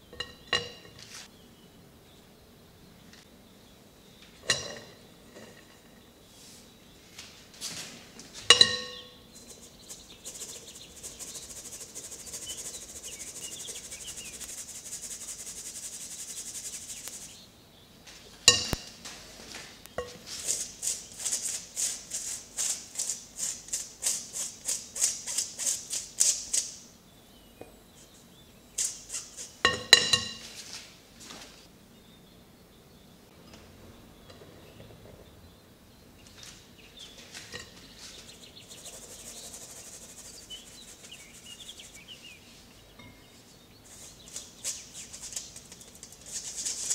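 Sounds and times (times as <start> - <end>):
utensil clinking against bowl: 4.4 - 5.9, 8.5 - 9.2, 18.5 - 18.9, 42.9 - 43.3
steady hiss: 6.2 - 27.0, 27.9 - 31.7, 36.5 - 46.9
rhythmic strokes: 9.4 - 17.4.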